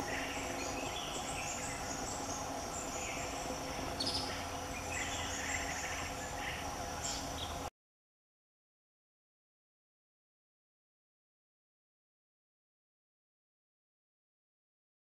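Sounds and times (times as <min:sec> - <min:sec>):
birds chirping: 0:00.0 - 0:07.7
insect hum: 0:00.0 - 0:07.7.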